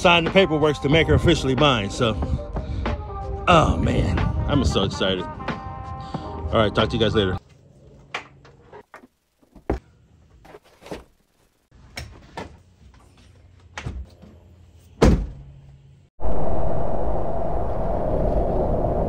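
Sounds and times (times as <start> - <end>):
heavy door thunk: 15.0 - 15.4
knocks and thuds of gear: 15.0 - 15.5.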